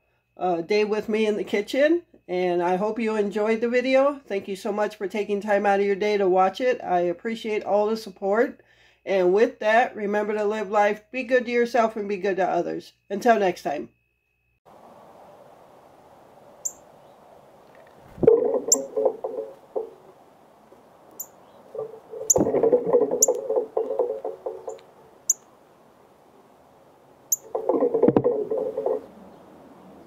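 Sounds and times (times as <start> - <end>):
bird chip notes: 16.6 - 25.5
low rattling and clattering: 17.8 - 20.1, 21.7 - 24.9.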